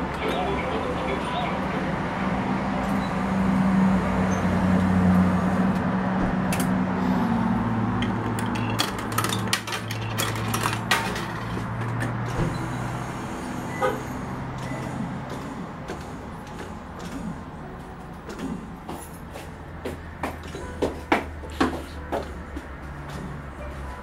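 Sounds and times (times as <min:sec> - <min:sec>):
coins clicking into slot: 0:08.4 - 0:11.4.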